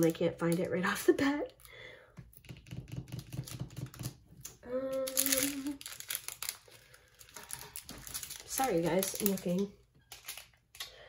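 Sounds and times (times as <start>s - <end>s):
plastic bags crinkling: 4.8s - 10.9s.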